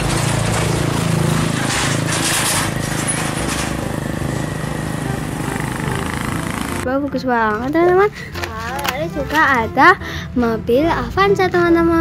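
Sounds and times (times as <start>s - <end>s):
truck engine rattly hum: 0.0s - 7.5s.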